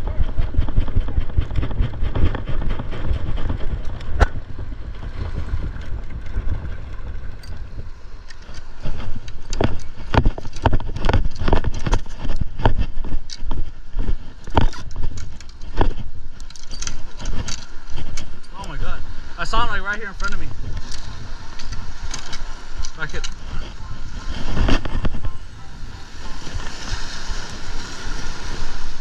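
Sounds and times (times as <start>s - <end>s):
wind rumbling on microphone: 0.0s - 29.0s
sharp clicks and knocks: 8.2s - 18.6s.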